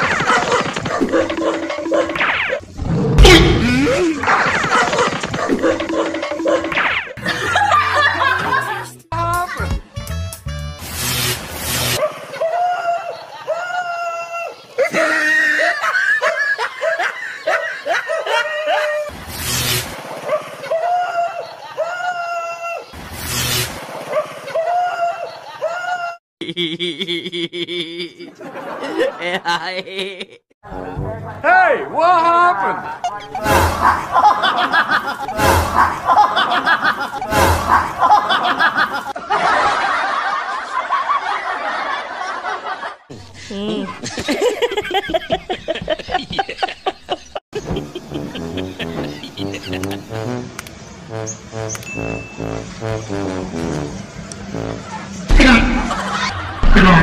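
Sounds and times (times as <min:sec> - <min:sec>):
people laughing: 0:00.0 - 0:02.2, 0:03.5 - 0:09.7, 0:12.0 - 0:19.1, 0:20.2 - 0:22.9, 0:24.0 - 0:30.6, 0:32.4 - 0:50.4, 0:54.4 - 0:57.0
looping background tune: 0:47.6 - 0:54.8
repeating thud: 0:55.3 - 0:56.0, 0:56.6 - 0:57.0.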